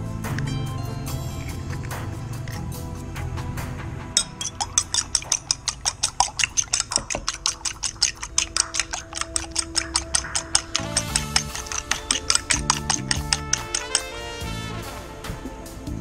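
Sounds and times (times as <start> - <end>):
fork beating eggs in bowl: 4.2 - 14.2.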